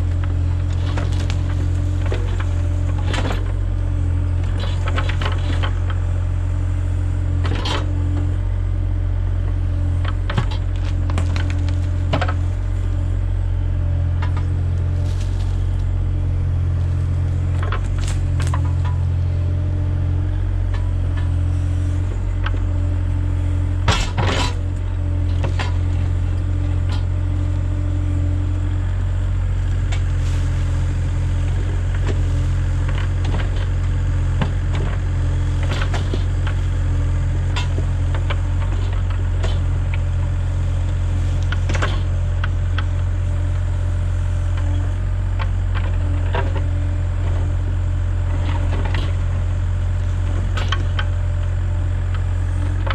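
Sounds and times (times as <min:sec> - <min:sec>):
diesel excavator engine running: 0:00.0 - 0:52.9
excavator bucket clanking: 0:00.1 - 0:06.0, 0:17.4 - 0:19.1, 0:23.6 - 0:27.6, 0:29.9 - 0:39.8.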